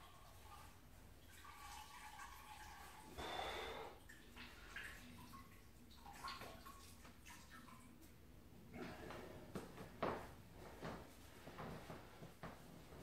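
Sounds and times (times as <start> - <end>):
liquid draining and splashing: 0.0 - 9.1.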